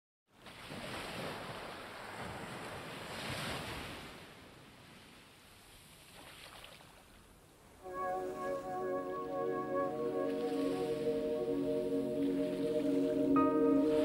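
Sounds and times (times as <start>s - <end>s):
ocean waves washing in: 7.8s - 14.0s.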